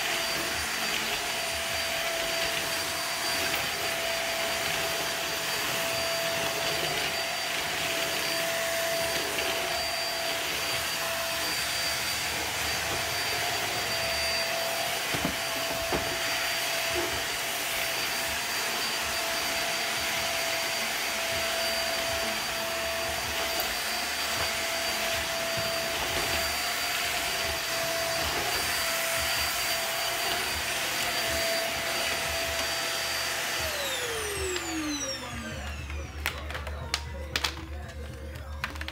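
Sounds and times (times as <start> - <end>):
vacuum cleaner running: 0.0 - 38.9.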